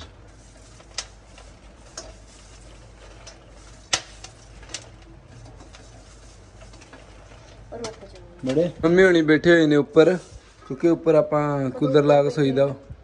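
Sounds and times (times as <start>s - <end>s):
spoon stirring popcorn: 0.0s - 8.7s.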